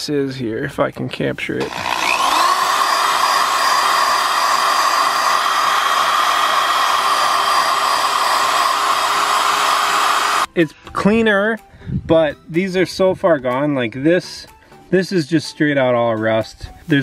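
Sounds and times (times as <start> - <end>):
electric drill with wire brush scouring: 1.6 - 10.5.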